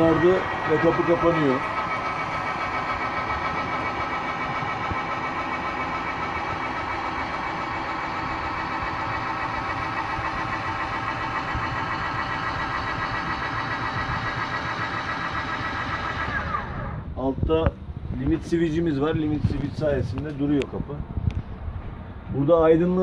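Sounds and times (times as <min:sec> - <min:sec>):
electric motor whining: 0:00.0 - 0:17.1.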